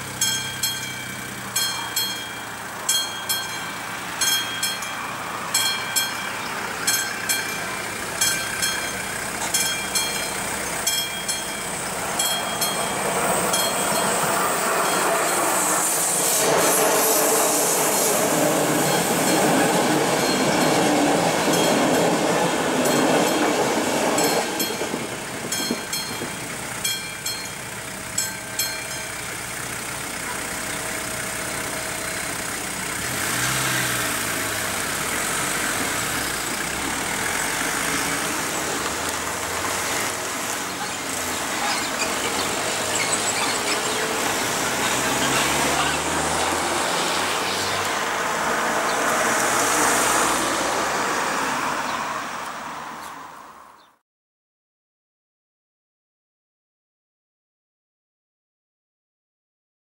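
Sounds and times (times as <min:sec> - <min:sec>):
level crossing bell ringing: 0:00.0 - 0:15.5, 0:25.5 - 0:32.5
train passing with rail noise: 0:00.0 - 0:53.9.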